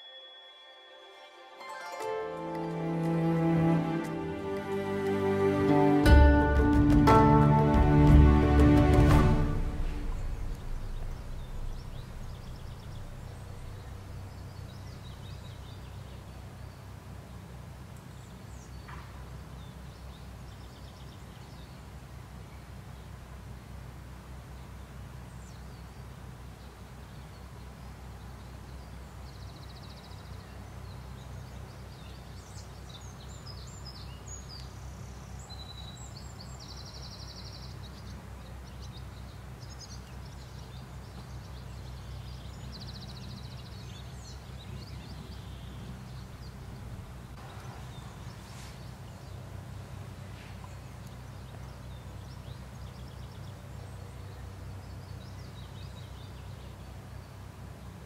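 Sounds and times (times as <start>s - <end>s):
birds chirping: 0.0s - 17.4s, 26.6s - 58.0s
steady low rumble: 3.0s - 15.2s, 44.5s - 51.8s.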